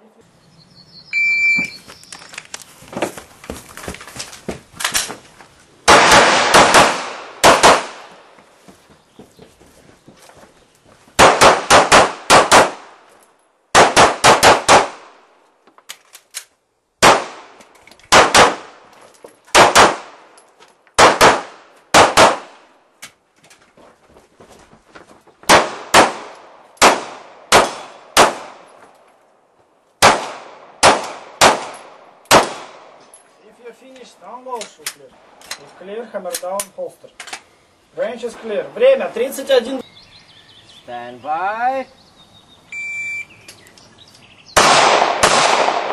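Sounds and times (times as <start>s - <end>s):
handgun shots: 5.9s - 8.2s, 30.0s - 32.8s, 44.6s - 45.9s.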